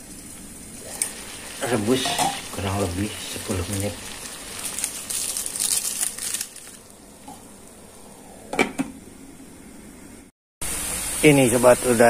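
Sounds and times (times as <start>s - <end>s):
plastic bag crinkling: 3.9s - 6.9s.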